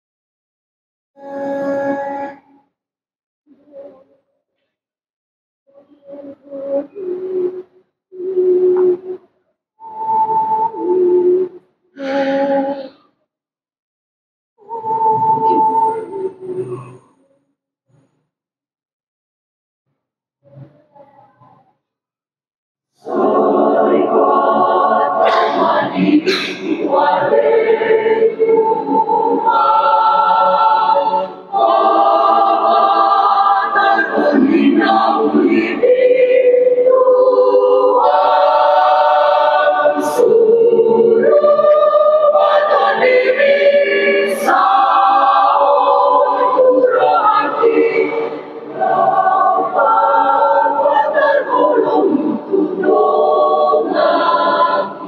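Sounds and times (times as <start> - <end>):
mixed choir singing in harmony: 9.8 - 11.6, 14.6 - 17.0, 23.0 - 55.0.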